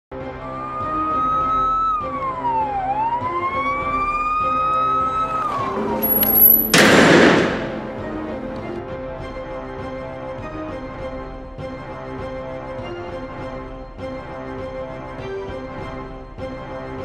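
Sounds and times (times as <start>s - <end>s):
police siren wailing: 0.5s - 5.9s.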